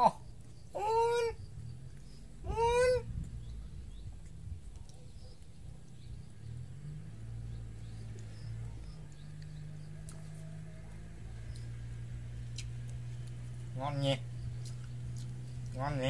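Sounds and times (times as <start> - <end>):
macaque whining calls: 0.0 - 1.4, 2.4 - 3.2.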